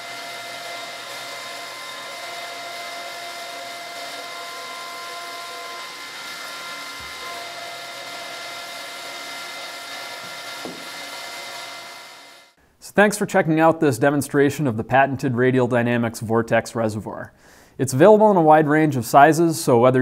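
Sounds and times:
electric pump whining: 0:00.0 - 0:12.6.

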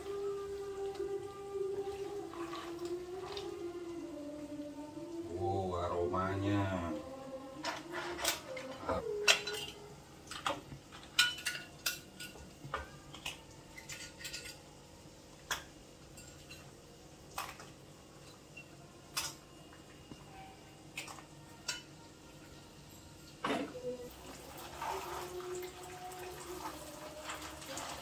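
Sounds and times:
metal tongs clinking on dishes: 0:09.2 - 0:09.8, 0:11.0 - 0:12.4, 0:13.2 - 0:14.6.

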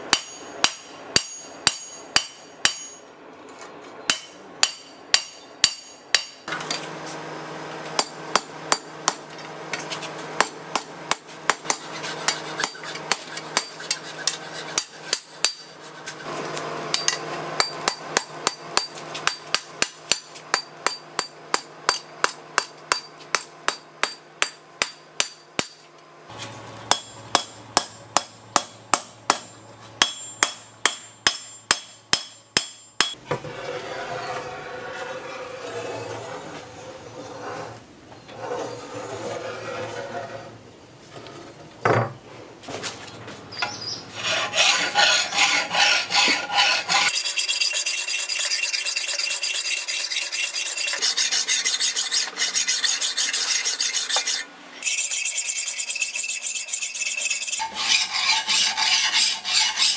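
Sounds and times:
hammer striking steel on anvil: 0:00.0 - 0:03.1, 0:04.1 - 0:06.9, 0:08.0 - 0:09.8, 0:10.4 - 0:15.8, 0:16.9 - 0:25.9, 0:26.9 - 0:33.2.

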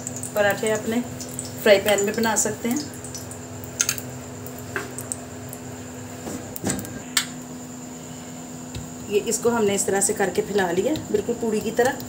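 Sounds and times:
low electrical hum: 0:00.0 - 0:12.0
hands tapping dough: 0:10.4 - 0:12.0.

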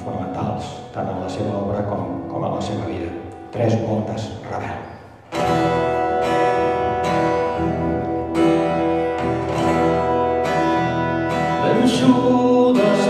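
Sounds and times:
acoustic guitar chords strummed: 0:05.2 - 0:13.0.

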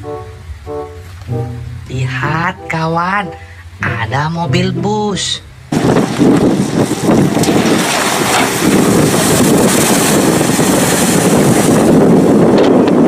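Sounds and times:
bus engine and water spray: 0:00.0 - 0:01.8, 0:05.5 - 0:13.0
wind buffeting microphone: 0:05.6 - 0:13.0.

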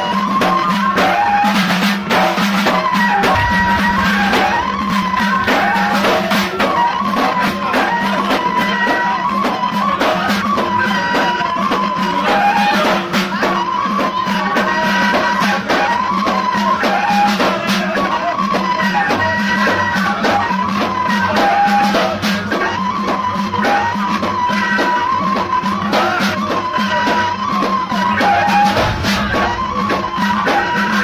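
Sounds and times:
frame drums beating: 0:00.0 - 0:17.0, 0:24.3 - 0:31.0
reed flute melody: 0:00.0 - 0:31.0
low drone: 0:03.2 - 0:06.6.

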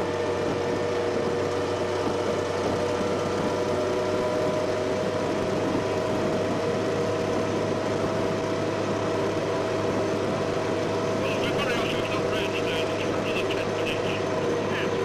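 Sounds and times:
vehicle drive hum: 0:00.0 - 0:15.0
steady whining tones: 0:00.7 - 0:15.0.

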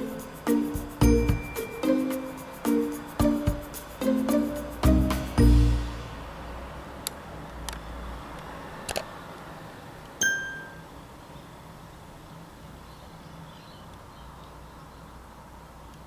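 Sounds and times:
clear ringing ding: 0:10.2 - 0:10.9.

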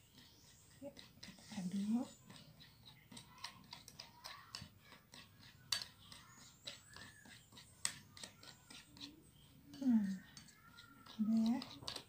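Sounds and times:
metal spoon scraping glass bowl: 0:00.0 - 0:12.0.

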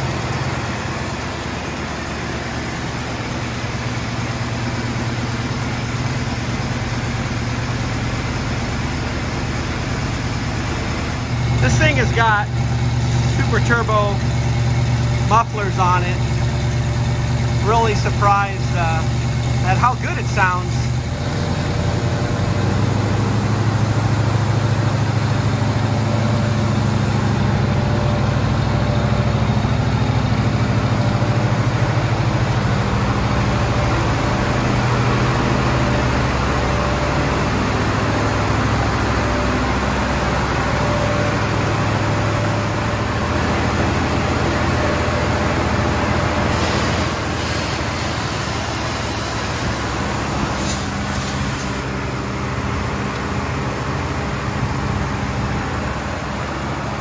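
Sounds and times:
car engine idling: 0:00.0 - 0:57.0
high hiss: 0:46.5 - 0:51.8.

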